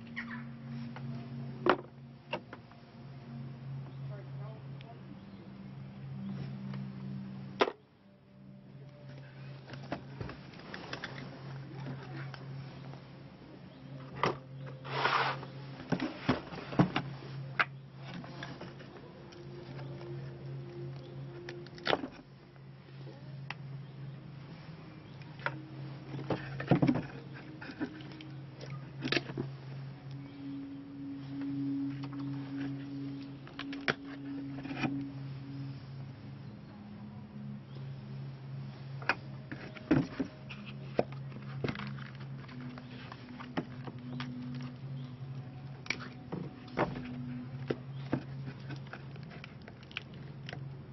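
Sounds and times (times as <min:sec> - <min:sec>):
steady low hum: 0:00.0 - 0:50.9
scraping rustle: 0:14.7 - 0:20.3.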